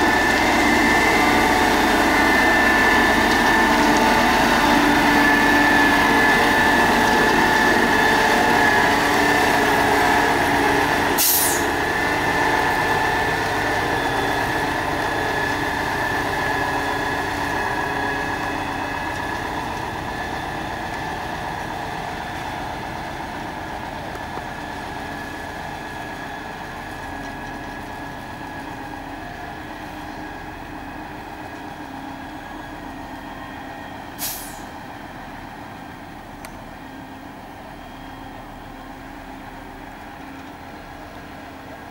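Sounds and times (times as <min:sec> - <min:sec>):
diesel truck engine running: 0:00.0 - 0:41.9
short hiss: 0:11.2 - 0:11.7, 0:34.2 - 0:34.7.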